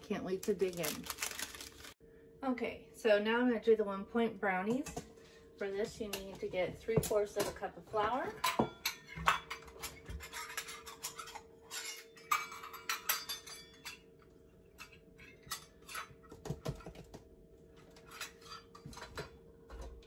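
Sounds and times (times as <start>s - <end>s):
faint steady hum: 0.0s - 20.0s
metal measuring cups clinking: 7.0s - 14.1s.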